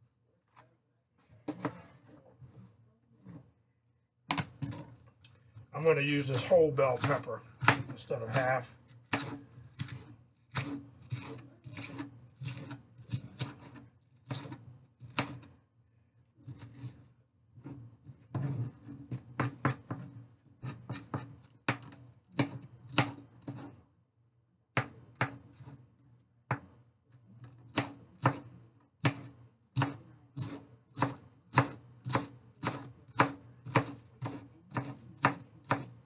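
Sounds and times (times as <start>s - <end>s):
knife chopping on cutting board: 6.3s - 15.5s, 17.6s - 23.8s, 24.8s - 25.8s, 26.5s - 26.7s, 27.7s - 36.0s.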